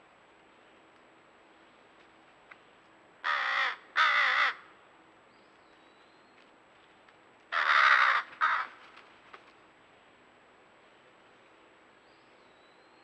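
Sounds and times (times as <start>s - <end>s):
crow cawing: 3.2s - 4.7s, 7.5s - 8.8s.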